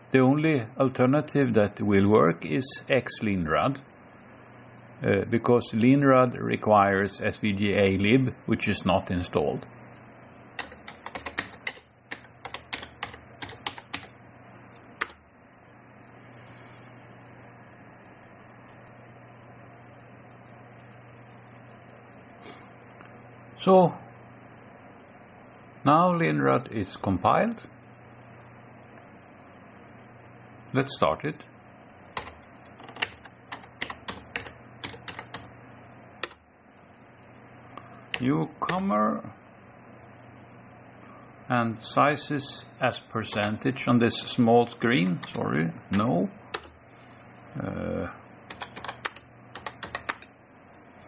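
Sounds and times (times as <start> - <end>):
keyboard keystrokes: 10.6 - 14.1, 15.0 - 15.2, 32.2 - 35.5, 36.2 - 36.4, 43.3 - 43.6, 45.0 - 46.8, 48.5 - 50.3.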